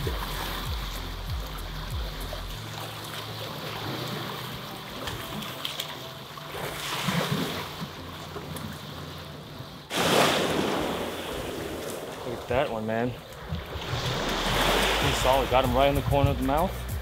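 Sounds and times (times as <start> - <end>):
small waves washing on rocks: 9.9 - 16.2.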